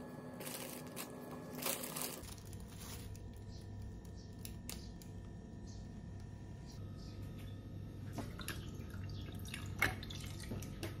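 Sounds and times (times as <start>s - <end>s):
wrappers rustling and crinkling: 0.4s - 3.5s.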